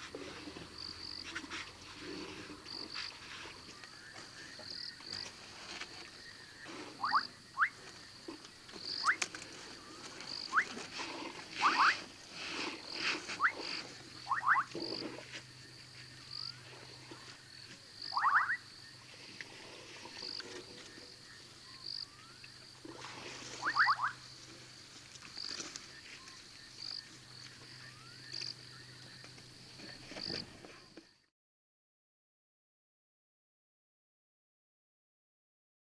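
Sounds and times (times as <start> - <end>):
elephants drinking water: 0.0 - 4.7, 7.9 - 17.5, 19.1 - 21.6, 22.4 - 25.9
frogs calling: 6.2 - 24.4
high-pitched pulsing call: 14.2 - 14.8, 18.0 - 18.7, 23.6 - 24.2.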